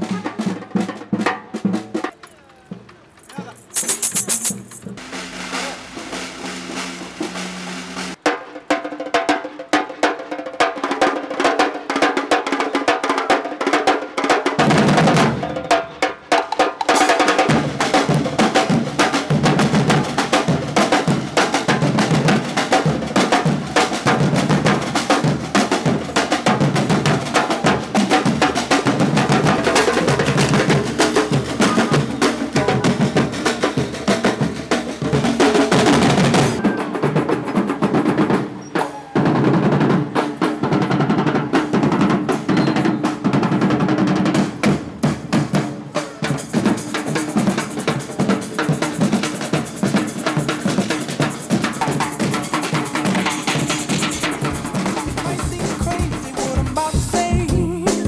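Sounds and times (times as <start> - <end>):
drum ensemble playing: 0.0 - 58.0
deep bass drums: 54.1 - 58.0.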